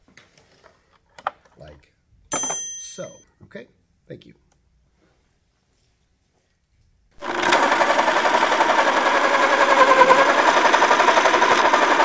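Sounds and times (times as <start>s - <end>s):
pencil sharpener grinding: 7.2s - 12.0s.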